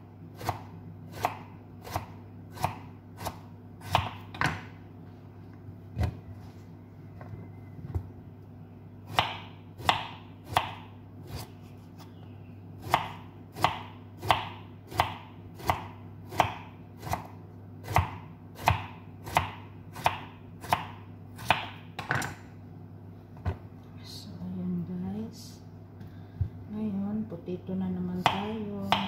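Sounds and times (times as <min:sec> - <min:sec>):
knife slicing vegetable: 0:28.0 - 0:29.0.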